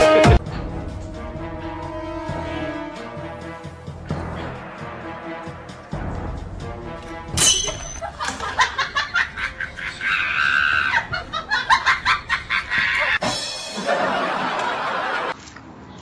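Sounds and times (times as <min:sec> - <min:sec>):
background music: 0:00.0 - 0:15.4.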